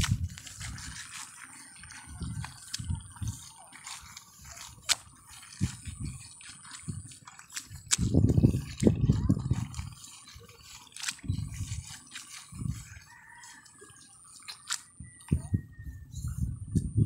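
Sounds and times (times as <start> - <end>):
seedling roots tearing: 0.0 - 12.5
wet mud squelching: 0.0 - 15.4.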